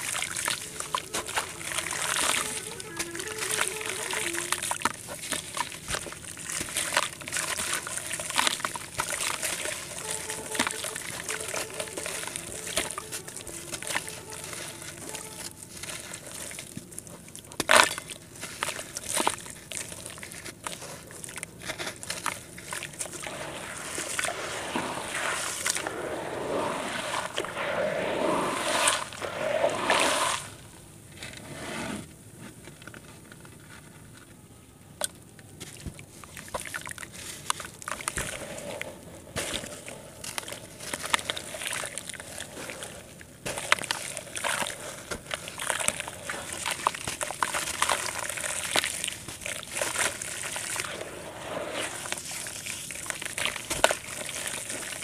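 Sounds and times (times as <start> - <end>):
muddy water sloshing: 0.0 - 30.8, 35.6 - 55.0
dirt crackling: 23.0 - 30.7.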